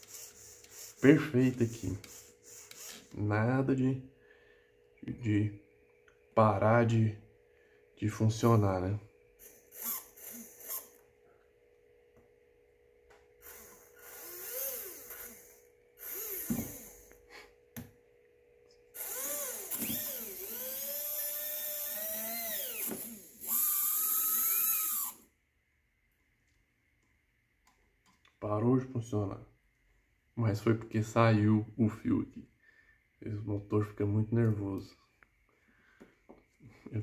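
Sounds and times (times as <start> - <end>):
electric motor whining underwater: 13.4 - 17.1, 19.0 - 25.2.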